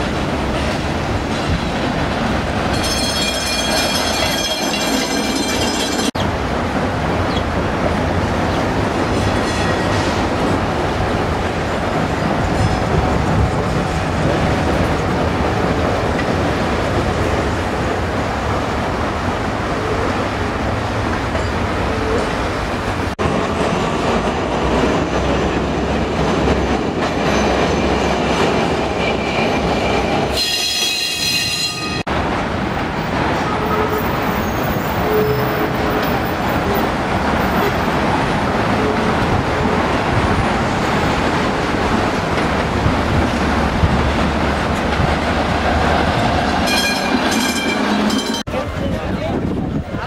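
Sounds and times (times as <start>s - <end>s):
steel wheels clattering on rails: 0.0s - 6.2s.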